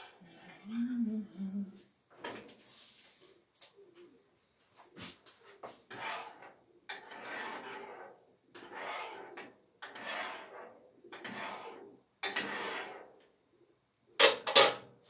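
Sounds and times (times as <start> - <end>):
spoon scraping saucepan: 5.9 - 13.0.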